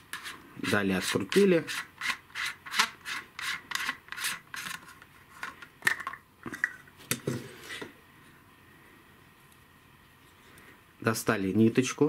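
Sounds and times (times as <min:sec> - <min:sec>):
screw lid threads rasping: 0:01.0 - 0:05.5.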